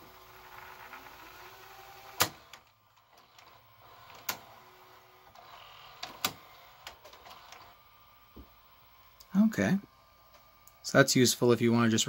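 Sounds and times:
faint motor whine: 0:00.0 - 0:12.0
tape mechanism clicks: 0:02.0 - 0:07.7.

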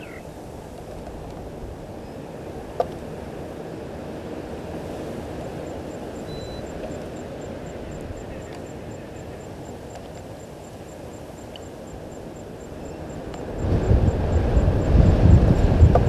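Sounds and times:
faint clicks: 0:08.0 - 0:08.8, 0:09.4 - 0:10.3, 0:11.4 - 0:11.7, 0:13.2 - 0:13.5.

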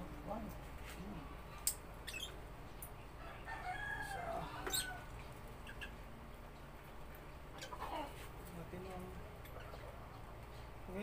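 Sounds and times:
faint bird calls: 0:04.4 - 0:06.0.

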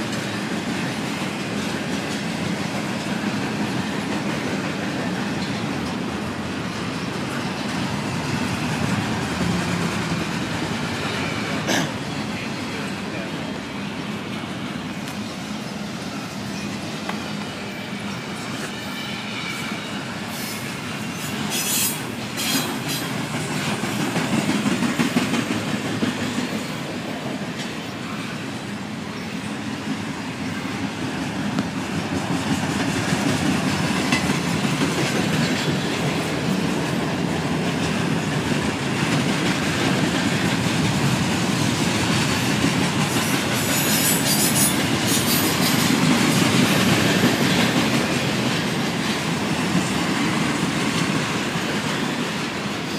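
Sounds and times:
steel wheels rolling on rail: 0:00.0 - 0:52.9
high wheel squeals: 0:16.2 - 0:22.7, 0:43.1 - 0:45.9.

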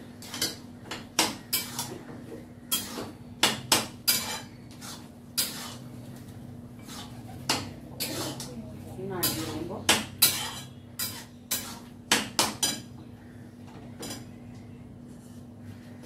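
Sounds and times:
steady low hum: 0:00.0 - 0:16.0
spoon scraping and clinking pan: 0:01.5 - 0:01.9, 0:04.1 - 0:05.8, 0:08.0 - 0:08.5, 0:10.2 - 0:11.9.

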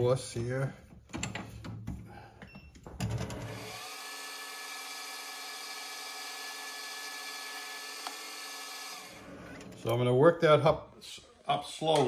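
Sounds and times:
metal lathe whining: 0:03.4 - 0:09.9.

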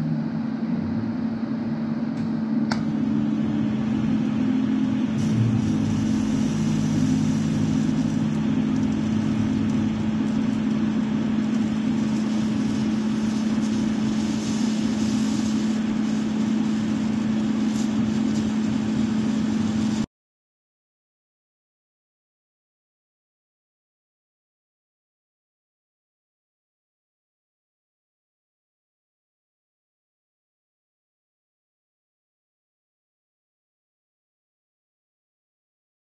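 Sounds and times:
constant hum: 0:00.0 - 0:20.1
welding arc hiss and buzz: 0:02.3 - 0:20.1.

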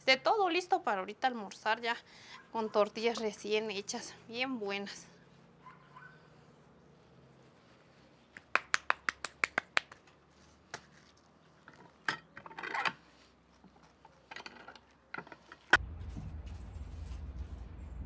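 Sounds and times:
hands slapping dough: 0:08.4 - 0:10.1.

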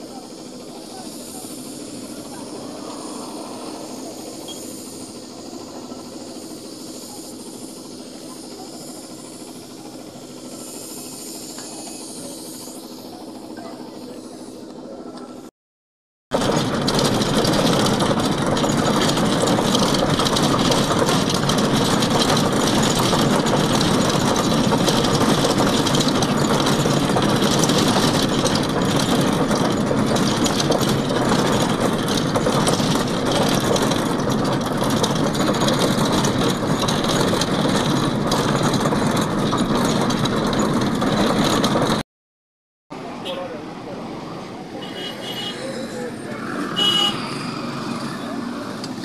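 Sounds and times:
constant rattle: 0:00.0 - 0:15.5, 0:16.3 - 0:42.0
vehicle interior road noise: 0:16.4 - 0:42.0, 0:43.0 - 0:49.0.

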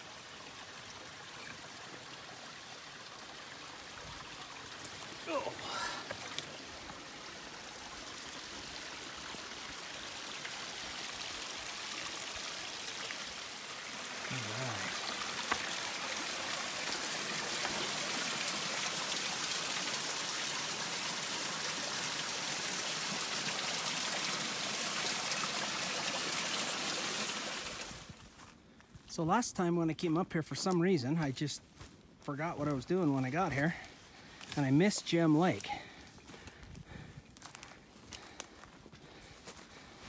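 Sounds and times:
water splashing over rocks: 0:00.0 - 0:28.2.

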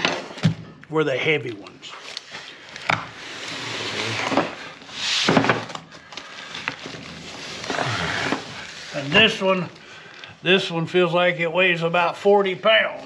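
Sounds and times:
cardboard sliding and scraping: 0:03.2 - 0:05.7, 0:07.2 - 0:09.4.

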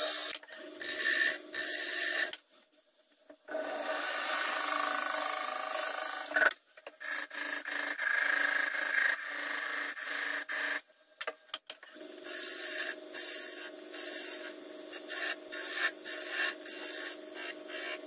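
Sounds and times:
turning tool cutting spinning wood: 0:00.0 - 0:02.3, 0:12.0 - 0:18.0.

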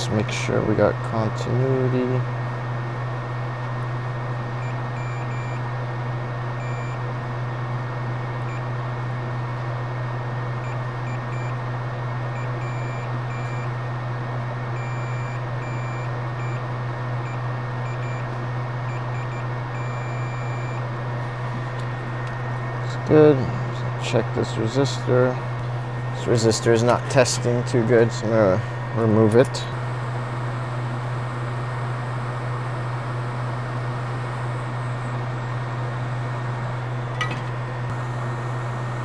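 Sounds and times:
multimeter continuity beeps: 0:04.6 - 0:05.6, 0:06.6 - 0:07.0, 0:10.6 - 0:11.6, 0:12.4 - 0:13.8, 0:14.8 - 0:16.6, 0:17.2 - 0:18.2, 0:18.9 - 0:20.8
low hum and hiss: 0:17.2 - 0:39.0.

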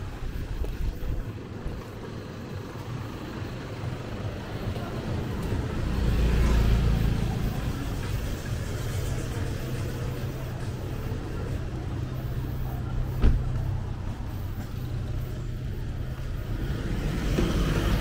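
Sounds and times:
traffic engines running: 0:00.0 - 0:18.0
vehicle passing close: 0:15.4 - 0:18.0.

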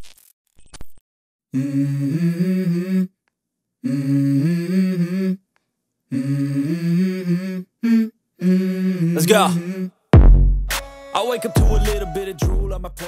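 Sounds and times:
hummed harmonised voices: 0:01.6 - 0:03.1.

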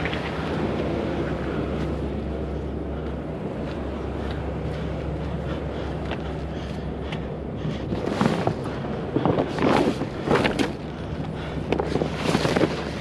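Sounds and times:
steady low hum: 0:00.0 - 0:13.0
tarps rustling and crinkling: 0:11.7 - 0:13.0.

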